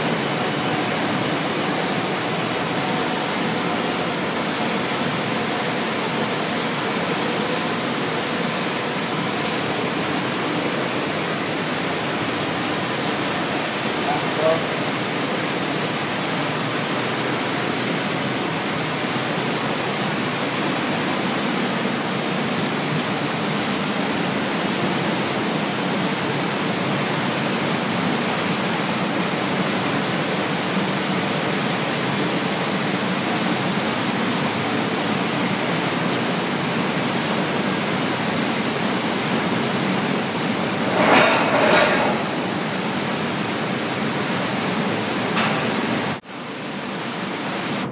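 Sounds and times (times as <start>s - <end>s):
rail car unloader roaring: 0.0s - 27.3s.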